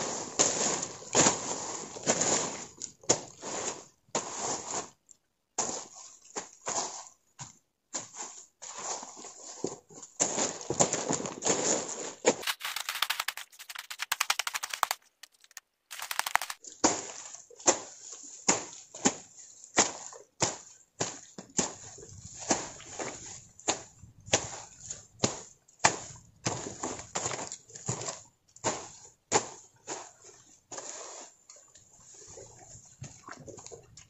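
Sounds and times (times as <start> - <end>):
scraping and rustling: 12.4 - 16.6.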